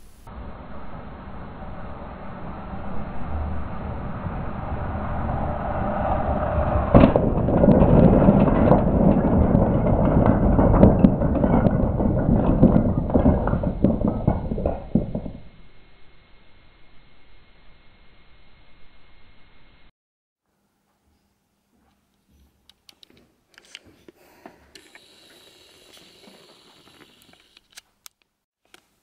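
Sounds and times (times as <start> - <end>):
crash into wooden blocks: 6.9 - 15.5
wooden blocks clattering: 7.0 - 15.5
toy train running on track: 24.7 - 27.7.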